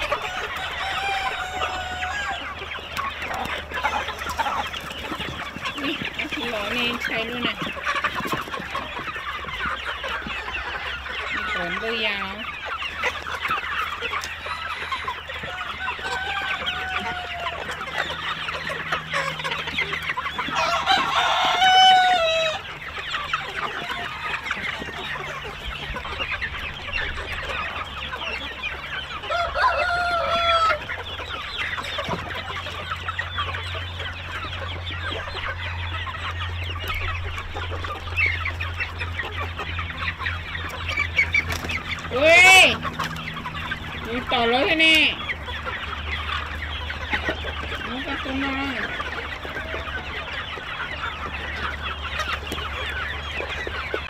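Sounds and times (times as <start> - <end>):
rooster crowing: 0.0 - 2.6, 14.9 - 17.8, 20.4 - 22.7, 29.2 - 30.9
chickens clucking: 0.0 - 54.0.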